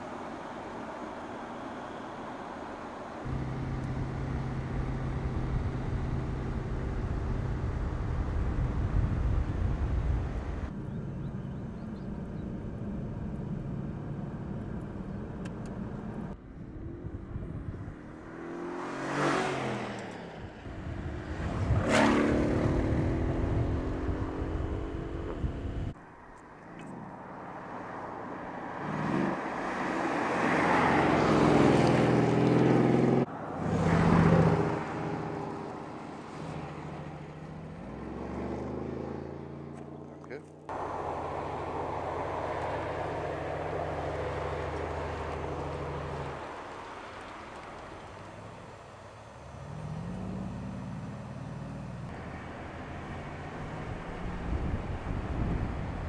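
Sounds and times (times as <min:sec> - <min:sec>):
car engine accelerating hard: 0:18.0 - 0:26.0, 0:28.8 - 0:56.0
car passing by fast: 0:18.0 - 0:26.0, 0:27.0 - 0:40.0, 0:40.7 - 0:56.0.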